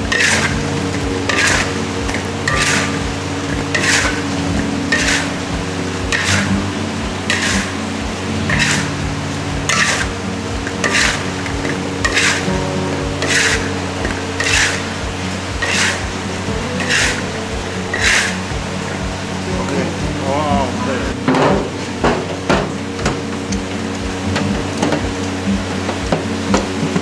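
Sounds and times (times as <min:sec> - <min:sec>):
low steady hum: 0:00.0 - 0:27.0
utensil scraping a steel wok: 0:00.1 - 0:05.5, 0:06.1 - 0:06.6, 0:07.2 - 0:09.0, 0:09.6 - 0:10.2, 0:10.8 - 0:12.6, 0:13.2 - 0:18.4.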